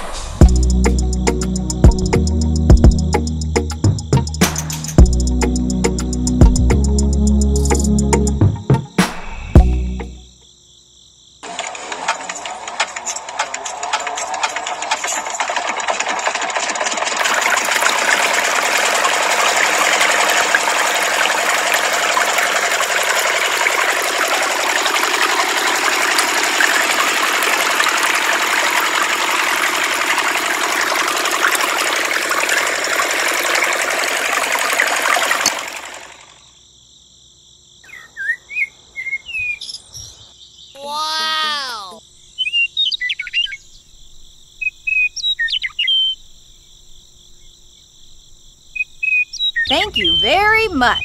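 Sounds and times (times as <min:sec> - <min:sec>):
water pouring and splashing: 0:11.4 - 0:36.3
toy pump motor running: 0:11.4 - 0:36.4
faint bird chirps: 0:37.8 - 0:47.6.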